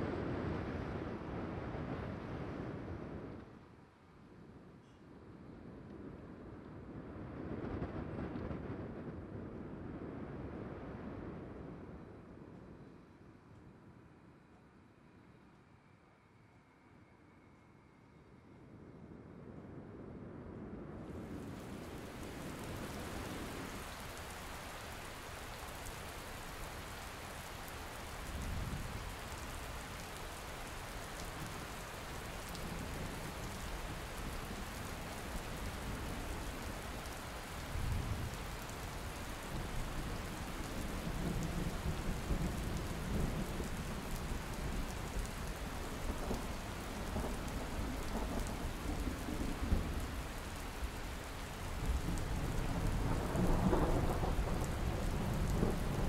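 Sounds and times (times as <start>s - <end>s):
steady rain falling: 0.0s - 4.3s, 5.2s - 13.7s, 20.7s - 56.0s
thunder rumbling: 21.2s - 56.0s.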